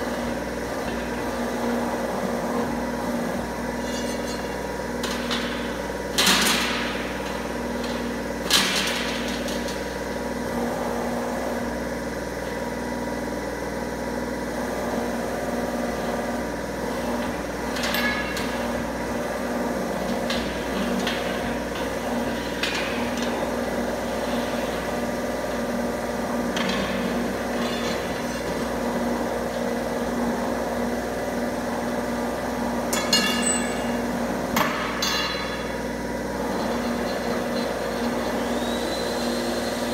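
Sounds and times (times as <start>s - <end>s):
bending machine motor hum: 0.0s - 39.9s
metallic clanks of steel bar: 34.6s - 35.7s.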